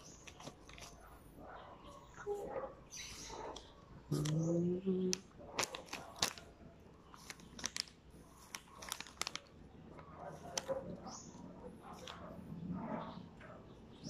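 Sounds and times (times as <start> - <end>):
foil packet crinkling: 5.5 - 6.5, 7.1 - 9.6.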